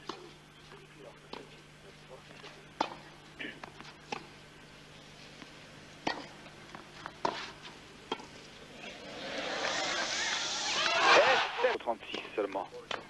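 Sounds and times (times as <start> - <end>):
tennis ball racket hits: 2.8 - 3.0, 6.0 - 6.3
crowd applause: 9.2 - 11.7.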